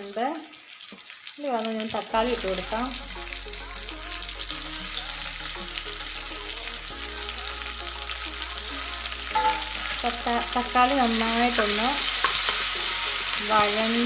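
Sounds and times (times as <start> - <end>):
onions and tomatoes sizzling in oil: 0.0 - 14.0
spatula scraping a frying pan: 11.4 - 14.0.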